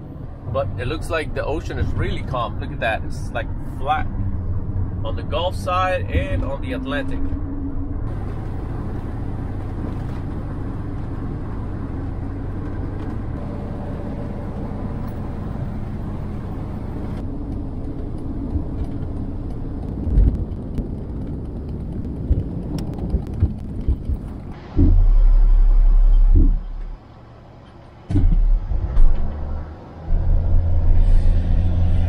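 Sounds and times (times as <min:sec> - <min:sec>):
road and engine noise in van: 0:00.0 - 0:32.0
low thumps: 0:07.2 - 0:27.1, 0:28.0 - 0:32.0.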